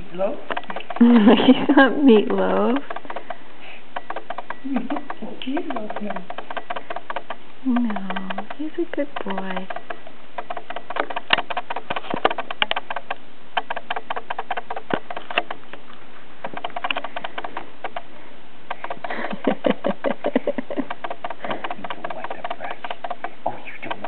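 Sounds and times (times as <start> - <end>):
cat squirming rustling: 0.5 - 24.0
brush scratching through cat fur: 19.4 - 24.0.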